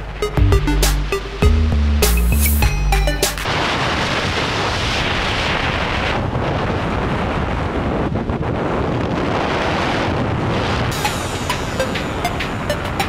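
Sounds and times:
wind rushing over microphone: 3.5s - 12.8s.

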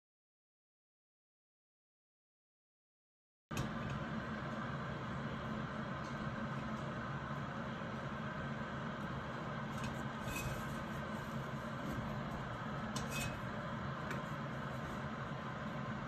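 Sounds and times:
steady background hum: 3.5s - 16.0s.

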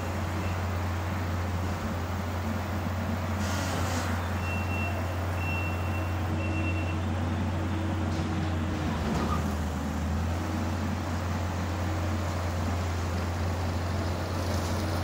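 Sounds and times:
backup alarm beeps: 4.4s - 7.1s.

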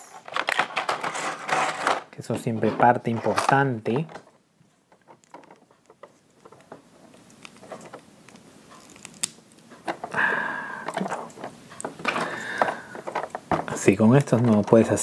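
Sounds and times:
plastic pieces clicking and tapping: 3.2s - 10.2s, 10.8s - 15.0s.

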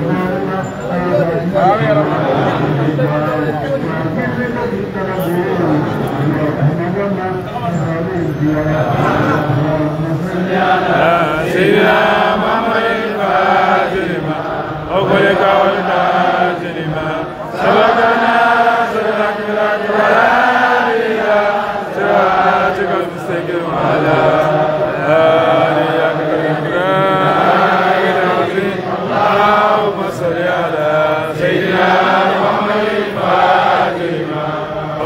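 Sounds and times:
voices chanting devotional phrases: 0.0s - 35.0s.

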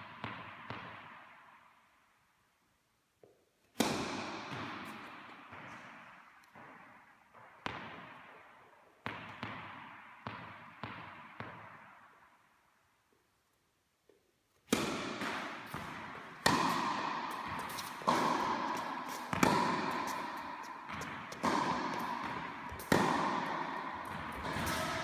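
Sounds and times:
ball bouncing on hard court: 0.0s - 1.5s, 3.2s - 12.2s, 14.6s - 25.0s
tennis ball strike echoing: 3.8s - 6.7s, 14.7s - 25.0s.

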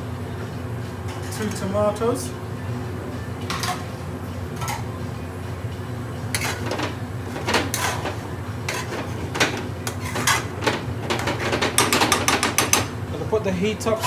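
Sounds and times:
metal spoon scraping a pan: 6.3s - 10.6s.

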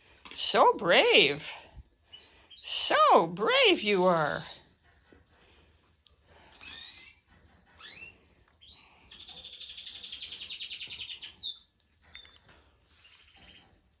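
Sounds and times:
songbird singing and trilling: 6.6s - 7.2s, 7.8s - 13.8s.

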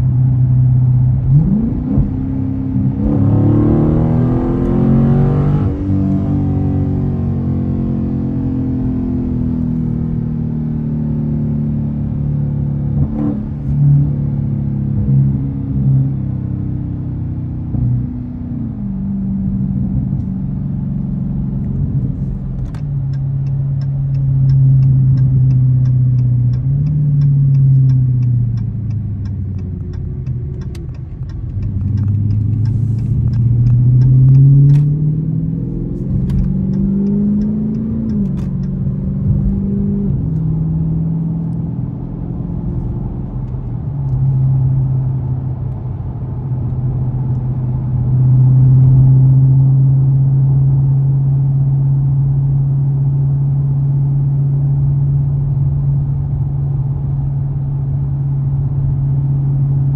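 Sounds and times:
car engine accelerating and shifting: 0.0s - 59.9s
light regular ticking: 22.7s - 35.0s, 36.2s - 39.6s.

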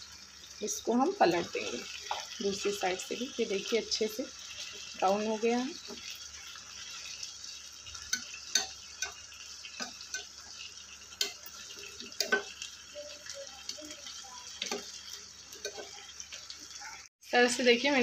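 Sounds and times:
meat sizzling in oil: 0.0s - 18.0s
metal tongs clicking on pan: 8.0s - 10.5s, 11.1s - 12.7s, 14.6s - 16.4s.

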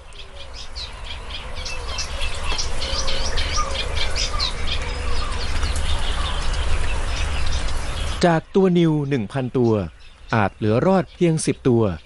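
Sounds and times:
birds chirping and calling: 0.0s - 12.0s.

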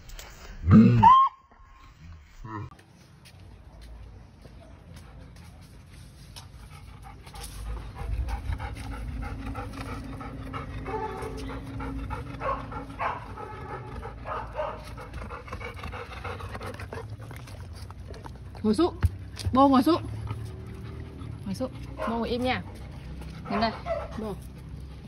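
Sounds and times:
dog panting: 6.4s - 25.0s.

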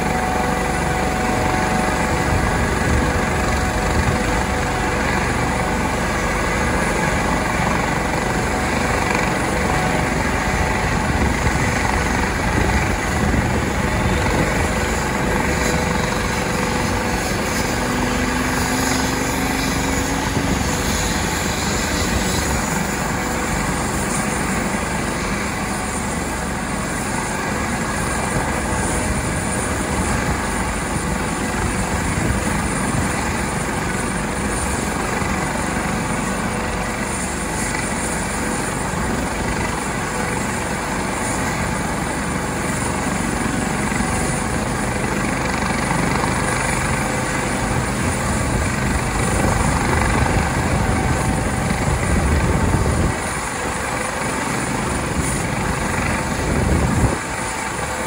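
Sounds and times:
helicopter engine and rotor whine: 0.0s - 58.0s.

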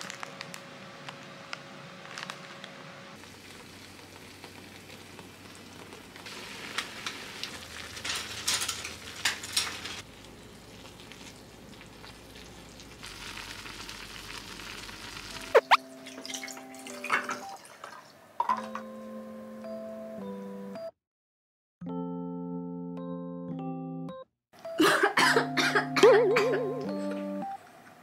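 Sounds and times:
seasoning packet crackling: 0.0s - 15.8s
noodles bubbling in pot: 3.2s - 16.2s.

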